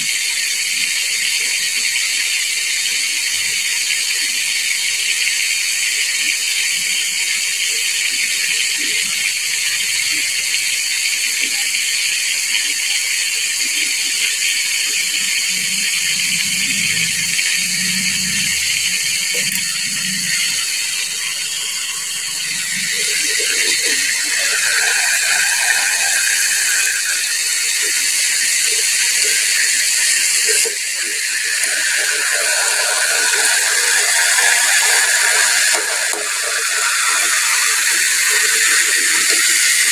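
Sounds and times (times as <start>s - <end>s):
chicken deep-frying in oil: 0.0s - 39.9s.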